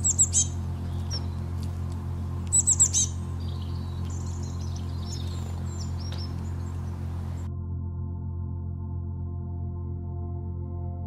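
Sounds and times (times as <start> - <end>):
faint bird twittering: 0.0 - 1.8, 2.4 - 7.5
songbird chirping: 0.0 - 7.5
steady low hum: 0.0 - 11.0.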